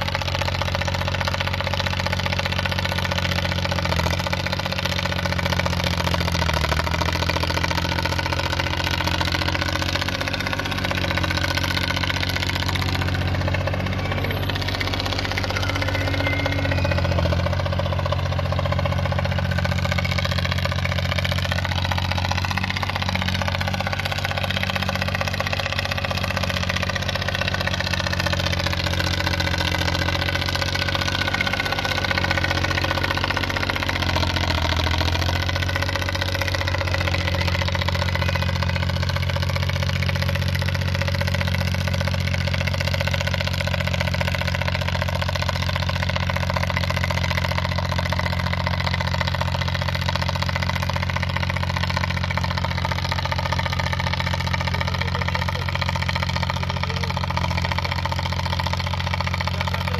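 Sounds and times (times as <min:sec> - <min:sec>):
wheel loader engine running: 0:00.0 - 0:59.9.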